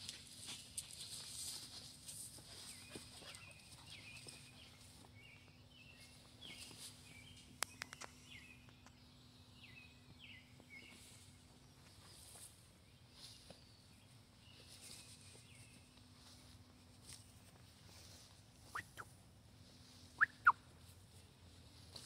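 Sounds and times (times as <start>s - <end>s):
bird chirping: 2.6s - 16.4s, 18.6s - 19.1s, 19.9s - 20.6s
sharp clicks: 7.6s - 8.2s.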